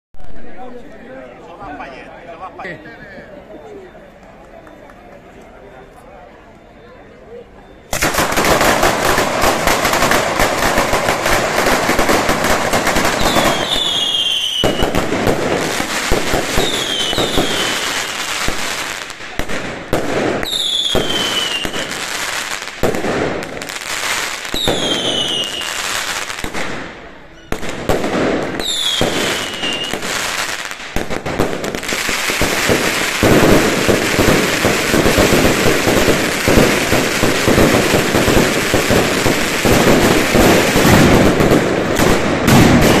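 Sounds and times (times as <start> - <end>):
whistling rockets: 7.6 - 22.0, 24.3 - 43.0
firecracker barrage: 7.8 - 43.0.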